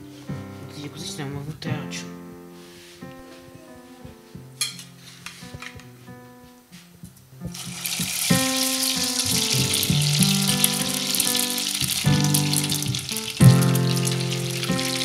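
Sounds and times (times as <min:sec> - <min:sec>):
background music: 0:00.0 - 0:15.0
meat sizzling in hot oil: 0:07.5 - 0:15.0.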